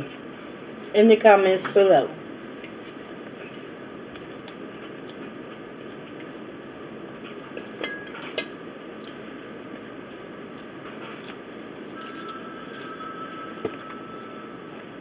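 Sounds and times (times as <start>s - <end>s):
chewing: 9.0s - 14.5s.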